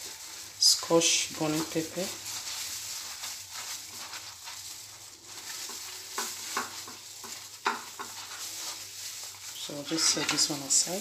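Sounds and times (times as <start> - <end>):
spoon scraping jam on bread: 2.4 - 10.5.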